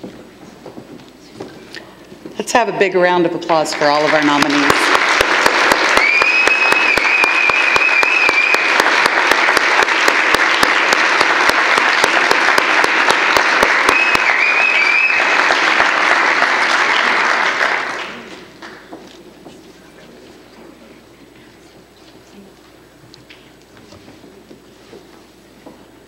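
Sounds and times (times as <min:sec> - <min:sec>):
audience applauding: 0:03.7 - 0:19.0.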